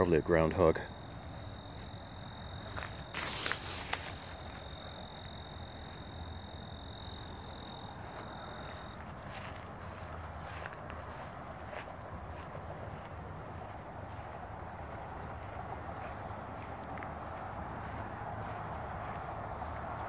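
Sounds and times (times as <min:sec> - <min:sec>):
insect high trill: 0:00.2 - 0:11.2
short rustle: 0:03.1 - 0:04.5.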